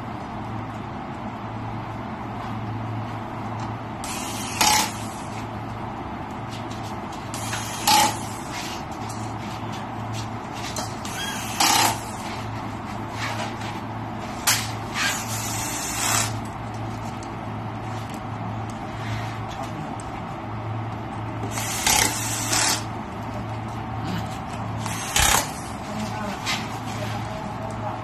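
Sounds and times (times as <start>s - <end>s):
steady low hum: 0.0s - 28.0s
pneumatic screwdriver driving screws: 4.0s - 5.2s, 7.3s - 8.5s, 11.0s - 12.2s, 14.9s - 16.4s, 21.5s - 22.9s, 24.8s - 25.6s.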